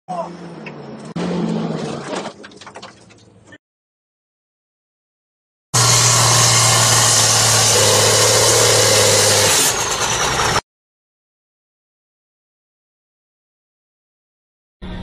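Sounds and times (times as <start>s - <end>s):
tractor diesel engine under load: 5.8s - 10.6s.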